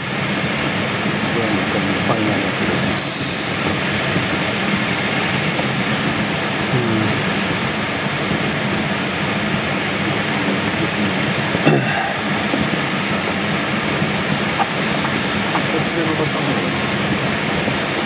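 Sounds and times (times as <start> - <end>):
air rushing over canopy: 0.0 - 18.0.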